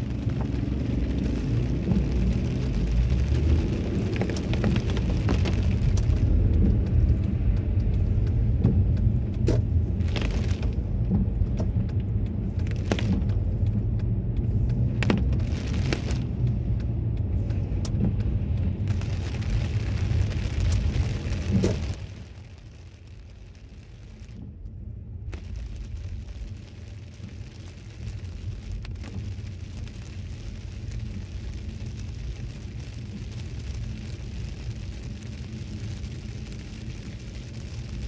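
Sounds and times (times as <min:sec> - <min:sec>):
tyre and engine rumble: 0:00.0 - 0:38.0.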